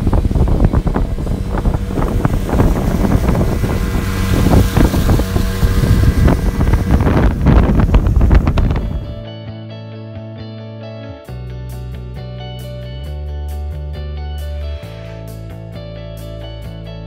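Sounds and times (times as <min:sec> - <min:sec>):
wind buffeting microphone: 0:00.0 - 0:09.2
motorboat running: 0:00.0 - 0:09.3.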